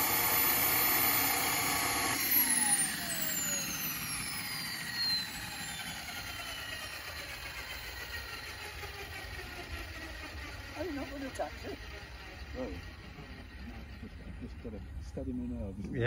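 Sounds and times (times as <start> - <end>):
turbine hiss running down: 0.0 - 9.6
turbine whine spooling down: 0.0 - 16.0.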